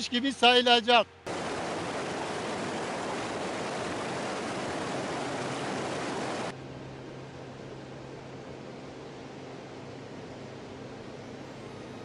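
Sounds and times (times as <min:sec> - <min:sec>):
fast river rushing: 0:01.3 - 0:06.5.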